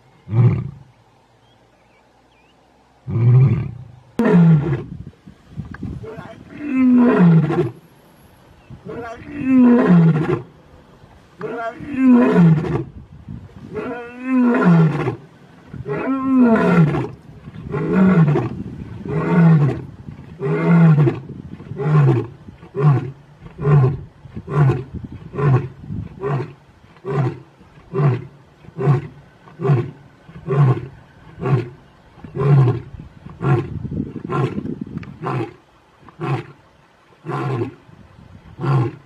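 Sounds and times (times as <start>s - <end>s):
lion roaring: 6.0s - 7.8s, 8.9s - 10.5s, 11.4s - 12.9s, 13.7s - 35.6s, 38.6s - 39.0s
lion grunting roars: 8.9s - 10.5s.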